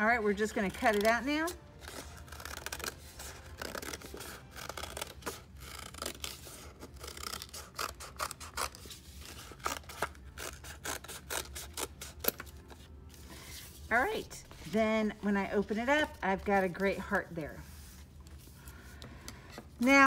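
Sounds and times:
scissors snipping paper: 0:00.5 - 0:12.7.

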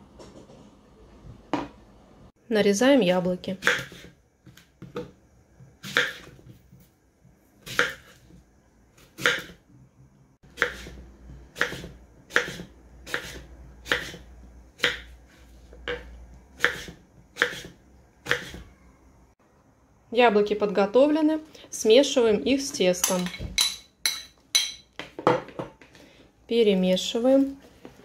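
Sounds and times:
knife chopping on wooden board: 0:03.6 - 0:05.1, 0:05.8 - 0:06.5, 0:07.6 - 0:08.3, 0:09.0 - 0:09.6, 0:10.5 - 0:14.2, 0:14.8 - 0:15.1, 0:15.8 - 0:18.6.

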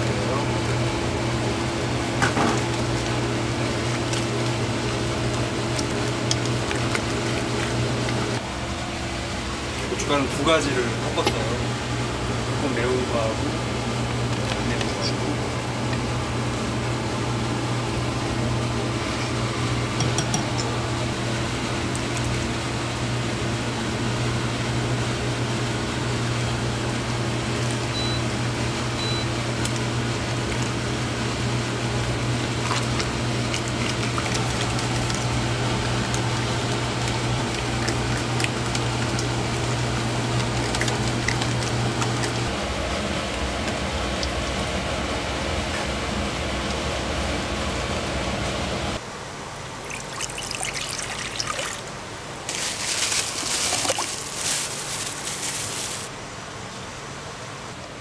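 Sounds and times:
machine hum: 0:00.0 - 0:58.0
whisk stirring in metal pot: 0:02.6 - 0:08.4, 0:32.2 - 0:42.5.

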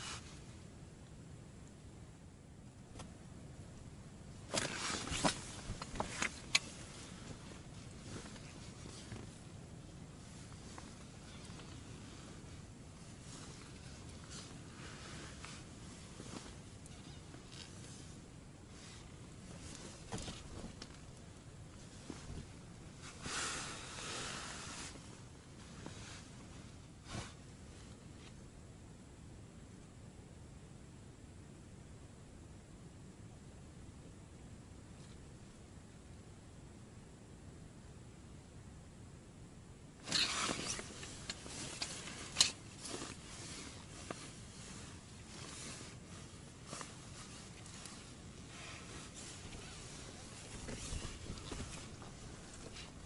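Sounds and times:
clothing and tent fabric rustling: 0:00.0 - 0:00.5, 0:04.4 - 0:28.4, 0:40.0 - 0:53.0.

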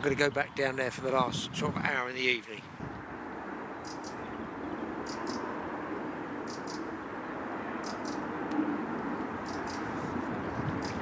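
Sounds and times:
outdoor background rumble: 0:00.0 - 0:11.0.

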